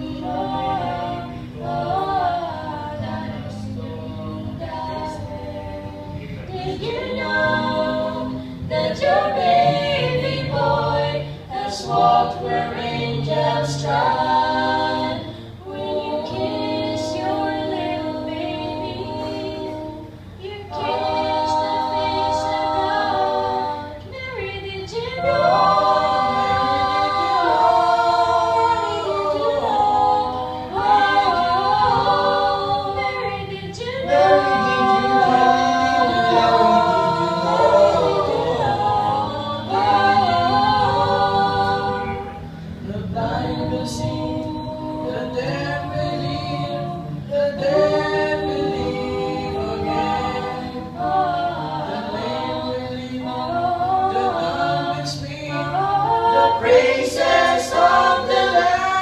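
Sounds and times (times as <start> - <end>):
a cappella group singing harmony: 0.0 - 59.0
low bass voice holding notes: 34.1 - 39.2.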